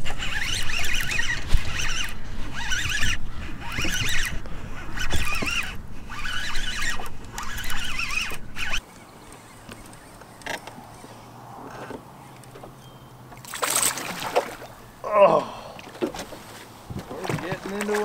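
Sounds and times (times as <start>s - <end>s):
fishing reel whirring: 0.0s - 10.2s.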